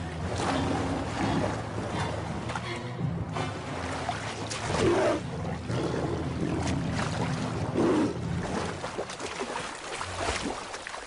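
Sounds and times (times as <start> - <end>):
animals splashing through river: 3.3 - 11.0.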